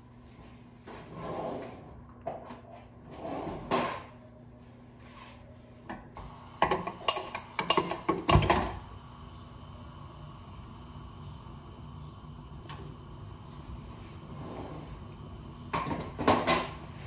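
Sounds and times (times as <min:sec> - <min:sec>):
soft scrape: 0:00.3 - 0:01.9, 0:03.1 - 0:04.0, 0:04.6 - 0:05.8, 0:14.1 - 0:15.0
gas flame humming: 0:05.9 - 0:17.0.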